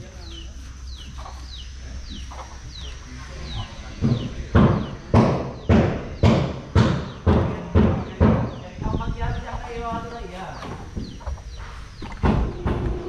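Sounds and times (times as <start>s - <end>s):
loud sharp knocks: 4.0s - 8.6s, 12.0s - 13.0s.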